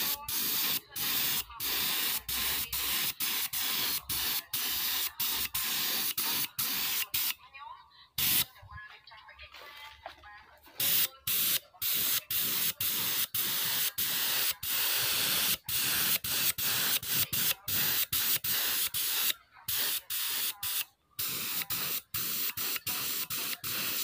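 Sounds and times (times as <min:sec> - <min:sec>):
spray gun hissing: 0:00.0 - 0:07.3, 0:08.2 - 0:08.5, 0:10.8 - 0:24.0.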